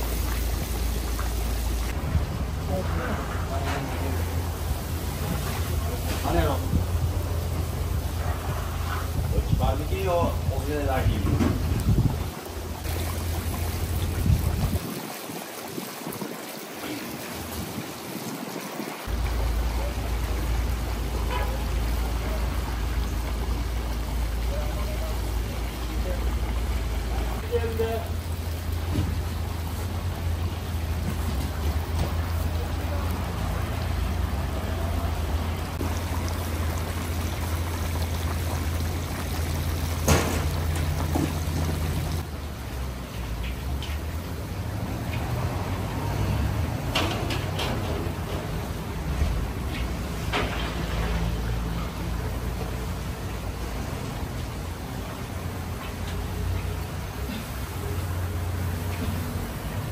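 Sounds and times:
broth boiling: 0:00.0 - 0:59.9.

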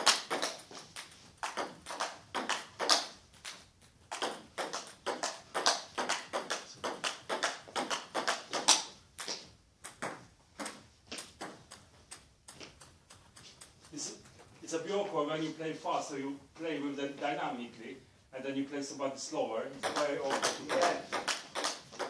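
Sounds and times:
ping pong ball bouncing on table: 0:00.0 - 0:00.6, 0:01.4 - 0:03.2, 0:04.1 - 0:11.8, 0:19.8 - 0:22.0
ping pong ball hitting bats: 0:00.0 - 0:14.5, 0:19.8 - 0:22.0.

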